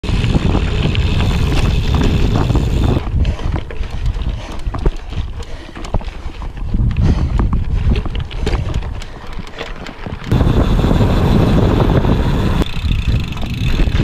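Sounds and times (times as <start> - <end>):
bike tyres rolling over dirt: 0.0 - 14.0
wind noise on microphone: 0.0 - 14.0
tyres rattling over loose gravel: 0.1 - 6.6, 8.1 - 14.0.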